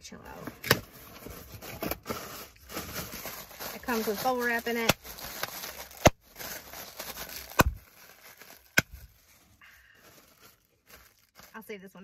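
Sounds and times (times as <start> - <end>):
plastic crinkling: 0.8 - 12.0
plastic air pillows popping: 7.3 - 9.1.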